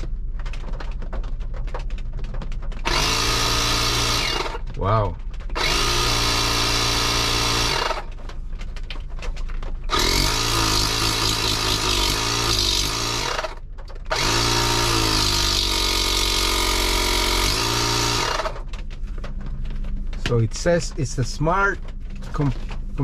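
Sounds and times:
electric tire inflator pump running: 2.8s - 8.2s, 9.9s - 18.7s.

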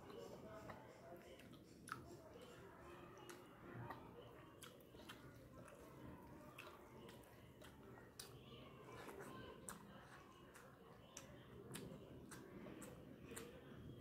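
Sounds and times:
chewing and mouth clicks: 0.1s - 14.0s.

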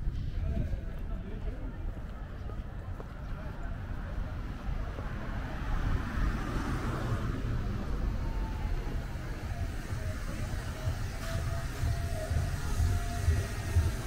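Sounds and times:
low traffic rumble: 0.0s - 14.0s
car passing: 2.8s - 14.0s.

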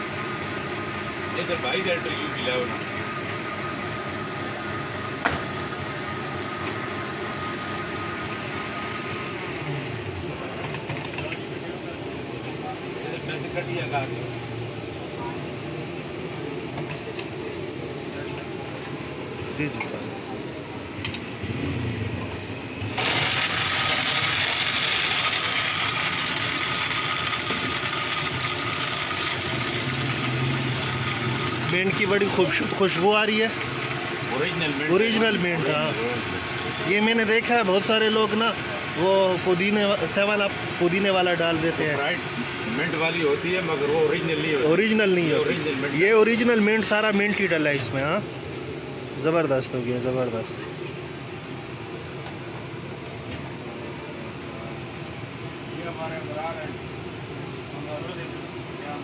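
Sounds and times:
blender motor whirring: 22.8s - 46.5s.

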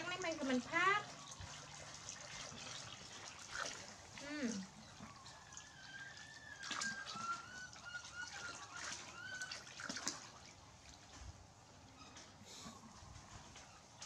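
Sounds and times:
monkey splashing in water: 0.0s - 11.2s
water pouring into plastic basin: 0.0s - 11.4s.

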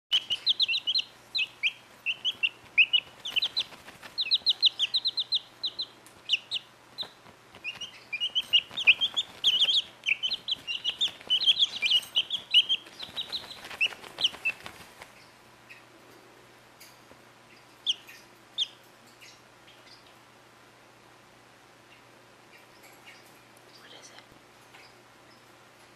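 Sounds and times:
chicks peeping: 0.1s - 15.9s, 17.5s - 20.2s
feathers and towel rustling: 2.6s - 4.6s, 7.2s - 15.2s.

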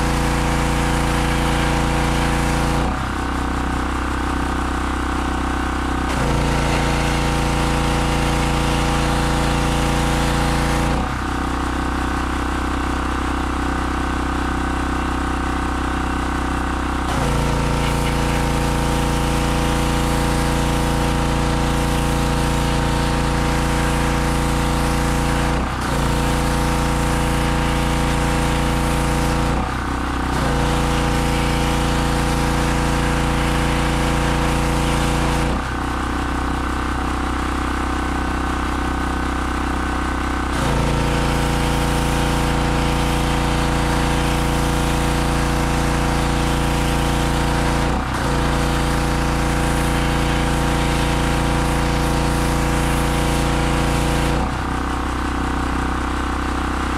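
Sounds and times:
gas engine running: 0.0s - 56.9s
water spray hissing: 41.0s - 54.3s.

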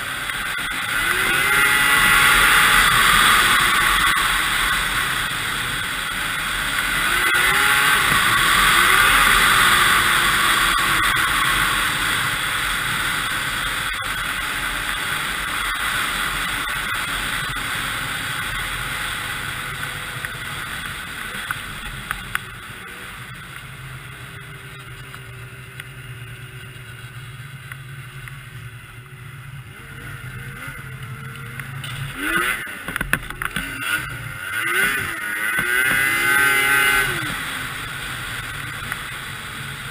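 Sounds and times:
snowmobile engine revving: 0.0s - 39.9s.

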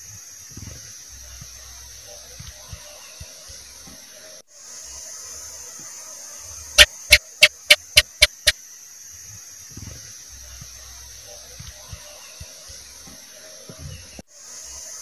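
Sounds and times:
gecko chirping: 6.8s - 8.5s.

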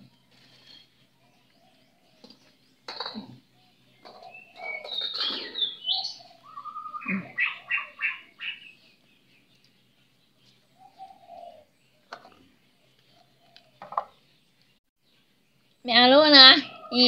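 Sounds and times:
birds chirping: 0.0s - 17.0s
lower falling bird call: 4.1s - 8.8s.

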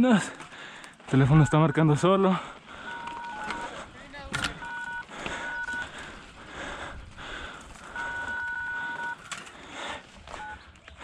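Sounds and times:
background noise: 0.0s - 11.0s
phone keypad dialing tones: 1.1s - 5.9s, 7.8s - 9.4s, 10.3s - 10.7s.

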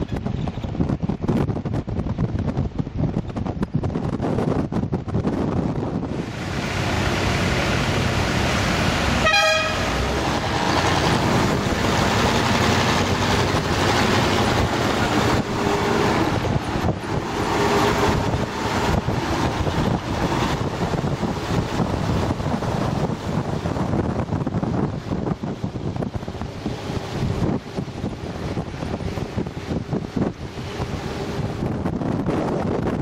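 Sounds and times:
wind and road noise: 0.0s - 33.0s
car horn toot: 9.2s - 10.0s.

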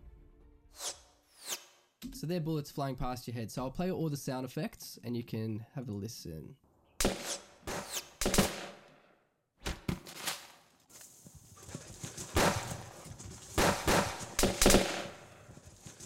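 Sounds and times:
bullets whizzing past: 0.7s - 1.9s, 7.0s - 8.9s
echoing gunshots: 7.0s - 9.1s, 12.3s - 15.5s.

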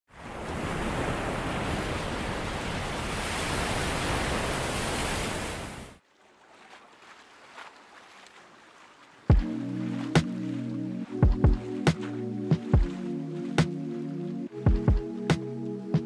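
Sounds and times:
ocean surf breaking: 0.1s - 6.0s, 9.3s - 16.0s
soft washes of small waves: 0.1s - 14.6s.

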